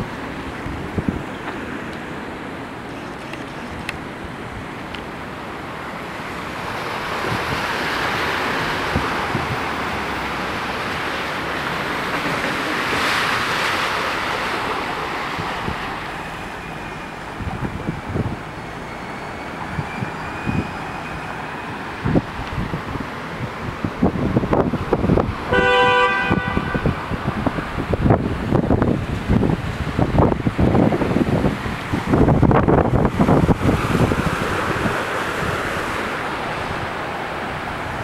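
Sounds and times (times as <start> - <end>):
car tyres swishing through floodwater: 0.0 - 38.0.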